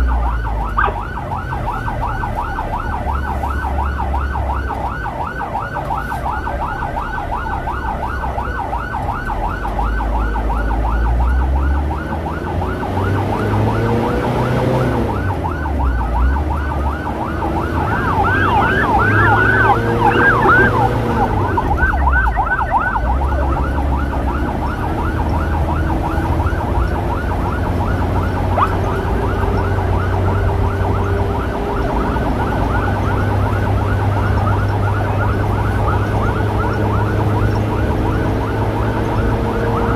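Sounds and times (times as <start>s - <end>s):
road rumble: 0.0s - 39.9s
siren wailing up and down: 0.0s - 39.9s
siren yelping: 0.0s - 39.9s
motorcycle engine: 16.6s - 34.2s.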